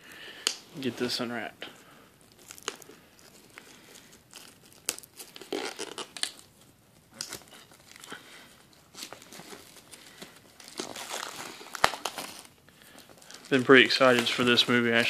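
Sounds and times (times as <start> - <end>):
plastic wrap crinkling and tearing: 2.2 - 15.0.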